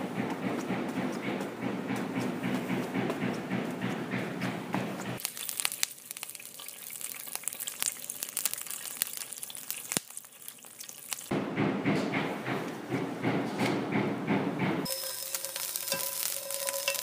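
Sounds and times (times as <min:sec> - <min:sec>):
crackling hiss with clicks: 0:05.2 - 0:11.3.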